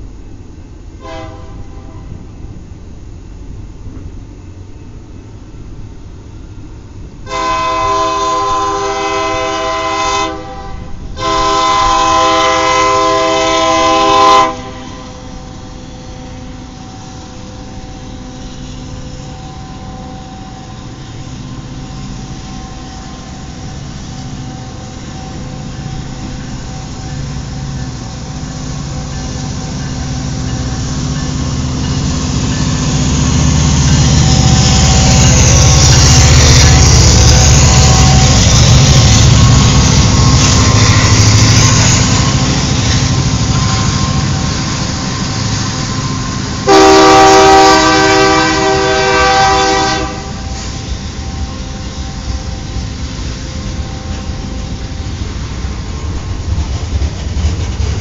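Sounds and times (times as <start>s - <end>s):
train rumble: 0.0s - 58.0s
locomotive air horn blasts: 1.0s - 2.3s, 7.3s - 15.6s, 45.7s - 52.8s.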